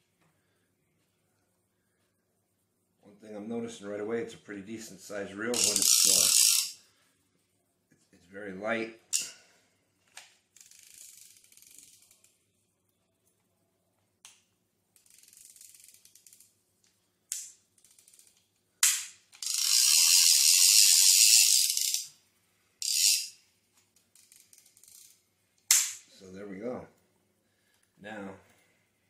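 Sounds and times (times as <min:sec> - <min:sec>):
fishing reel ratchet clicking: 0:05.5 - 0:06.8, 0:10.6 - 0:12.4, 0:15.0 - 0:16.6, 0:17.3 - 0:18.5, 0:19.3 - 0:22.1, 0:22.8 - 0:23.4, 0:24.0 - 0:25.2.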